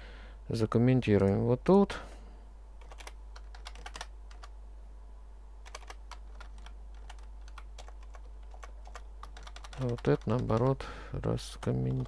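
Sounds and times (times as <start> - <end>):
steady low hum: 0.0 - 12.0
keyboard keystroke clicks: 2.8 - 4.5, 5.7 - 10.7.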